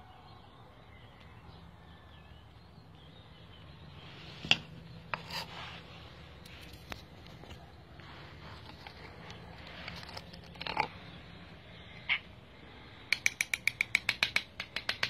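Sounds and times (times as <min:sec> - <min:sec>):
spoon clicking against tin can: 0:13.1 - 0:15.0.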